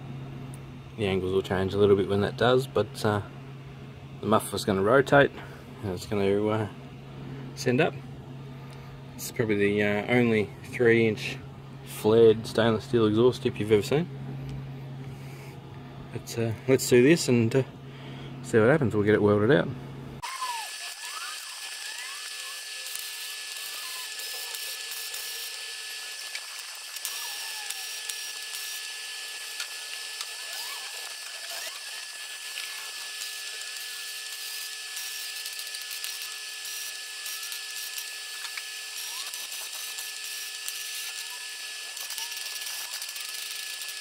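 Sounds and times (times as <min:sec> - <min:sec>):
welder arc crackling: 0:20.2 - 0:44.0.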